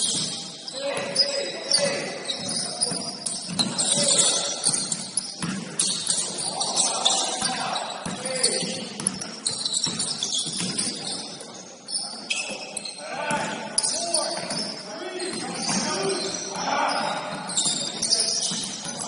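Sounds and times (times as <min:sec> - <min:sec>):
shoe squeaks: 0:00.0 - 0:19.0
players' voices: 0:00.3 - 0:09.3, 0:10.6 - 0:19.0
basketball bouncing on court: 0:01.8 - 0:06.5, 0:07.3 - 0:11.2, 0:15.3 - 0:19.0.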